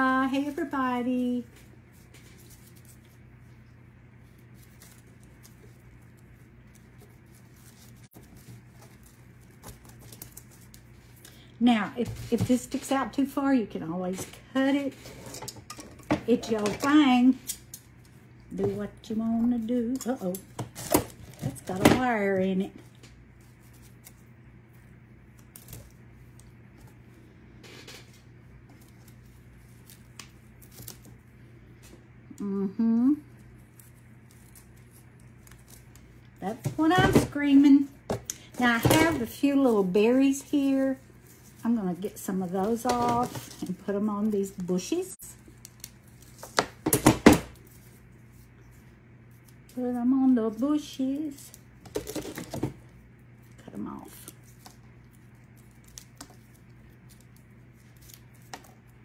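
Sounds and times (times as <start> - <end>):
steady low hum: 0.0 - 59.0
paper rustle: 0.3 - 11.4.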